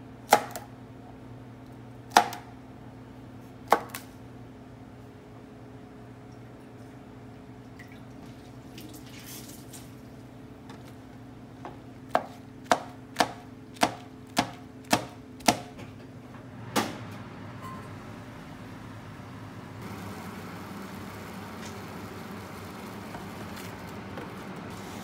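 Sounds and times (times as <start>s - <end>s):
knife chopping on cutting board: 2.1s - 2.5s, 3.7s - 4.1s, 11.6s - 15.8s.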